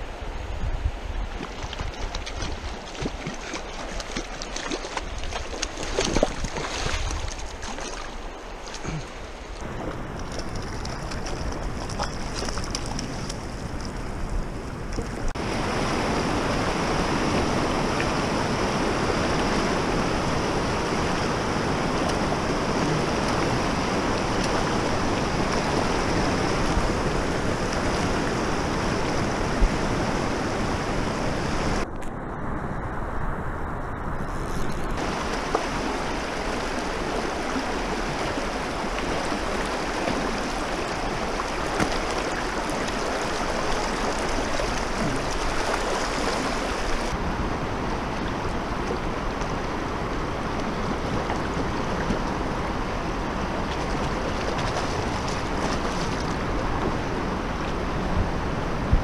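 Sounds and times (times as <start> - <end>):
water splashes: 1.1 - 31.9, 34.2 - 59.0
river rapids rushing: 15.4 - 31.8, 35.0 - 58.8.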